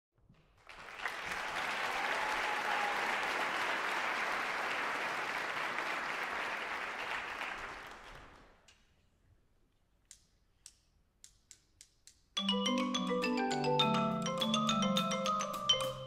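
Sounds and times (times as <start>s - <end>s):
audience applauding: 0.5s - 8.6s.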